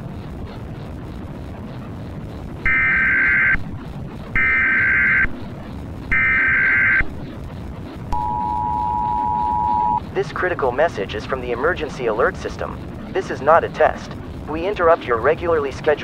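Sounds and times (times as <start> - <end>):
low rumble: 0.0 - 16.0
data screech bursts: 2.7 - 3.6, 4.4 - 5.3, 6.1 - 7.0
two-tone attention signal: 8.2 - 10.0.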